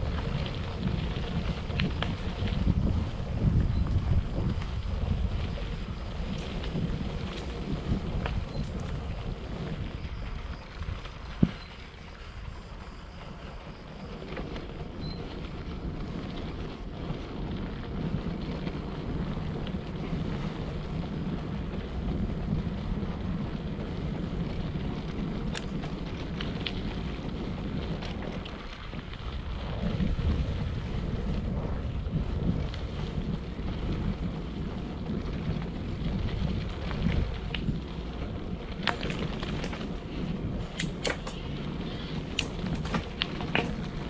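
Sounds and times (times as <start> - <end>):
wind rushing over microphone: 0.0 - 44.0
sharp clicks: 40.7 - 41.5.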